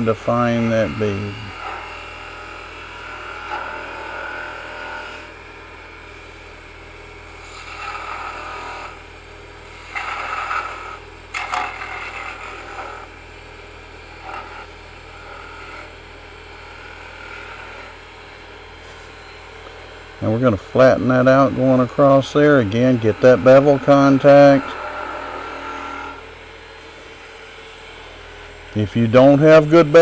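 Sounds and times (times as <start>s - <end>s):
wood lathe humming: 0.0s - 30.0s
gouge scraping wood: 9.7s - 13.1s.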